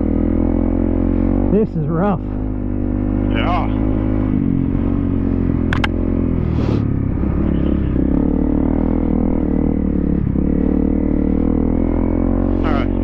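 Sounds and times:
dirt bike engine running: 0.0 - 13.0
sharp clicks: 5.7 - 6.0.

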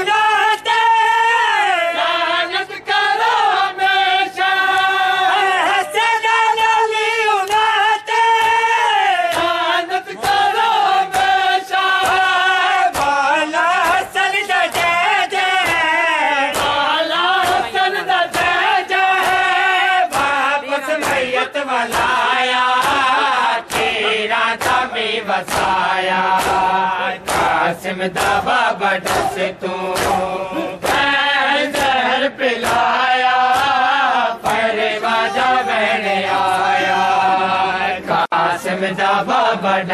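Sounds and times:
men chanting in unison: 0.0 - 39.9
chest-beating slaps: 9.3 - 13.2, 15.6 - 34.7.

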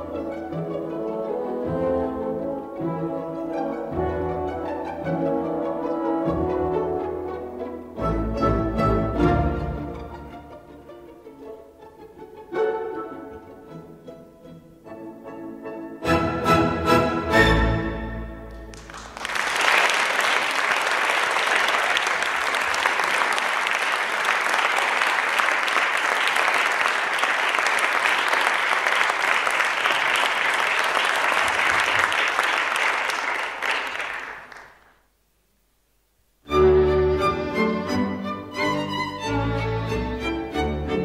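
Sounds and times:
music: 0.0 - 19.0, 36.5 - 41.0
audience clapping: 18.5 - 35.0.

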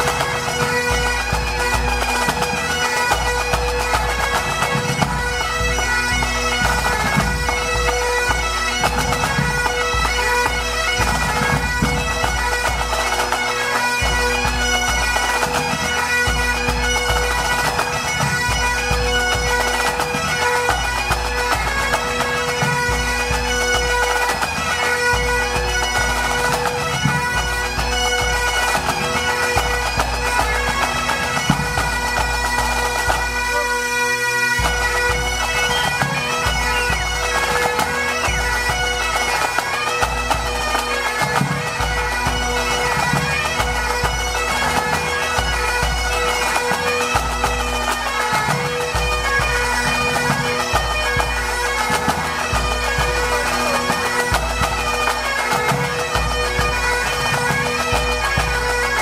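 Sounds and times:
drums beating: 0.0 - 33.7, 34.5 - 59.0
bagpipes with drones: 0.0 - 59.0.

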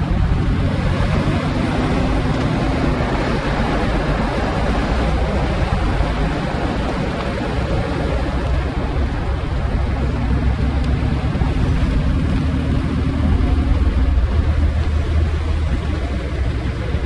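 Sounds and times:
car engine low rumble: 0.0 - 17.0
road and wind noise: 0.0 - 17.0.

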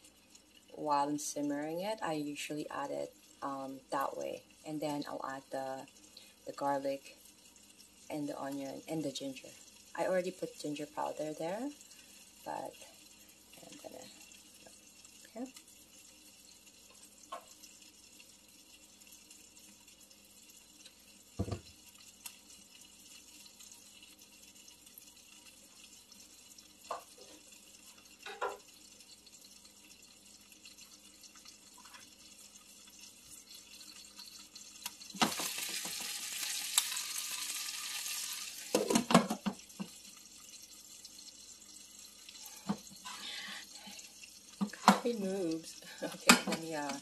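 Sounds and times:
pan simmering with bubbling hiss: 0.0 - 47.0
food clattering into pan: 28.2 - 28.7, 33.6 - 40.0, 46.0 - 47.0.

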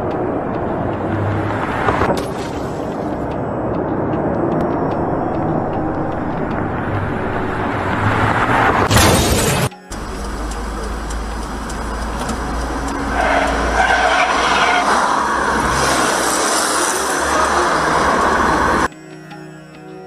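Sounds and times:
low engine rumble: 0.0 - 9.1, 9.8 - 18.9
traffic: 0.0 - 19.0.

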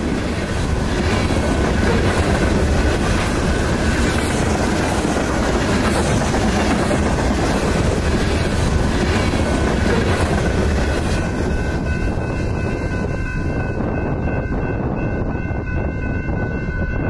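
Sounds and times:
train wheels clattering on rails: 0.0 - 16.5
crossing signal bell: 10.9 - 17.0.

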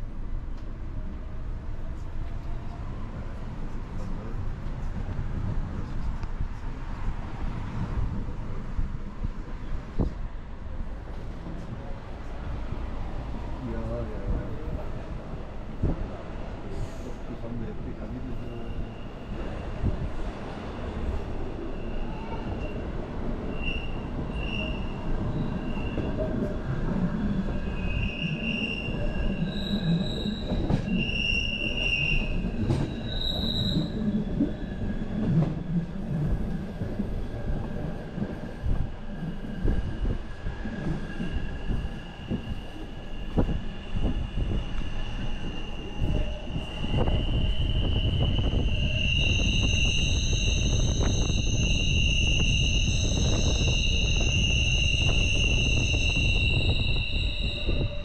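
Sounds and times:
train rumbling on rails: 0.0 - 58.0
wheel squeal: 23.5 - 26.2, 27.6 - 35.0, 41.1 - 58.0.

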